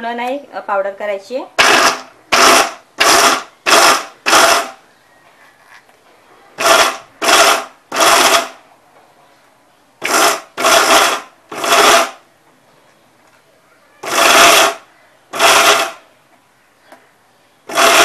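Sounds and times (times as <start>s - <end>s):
mixer grinder bursts: 1.6s - 4.8s, 6.6s - 8.6s, 10.0s - 12.2s, 14.0s - 16.0s, 17.7s - 18.0s.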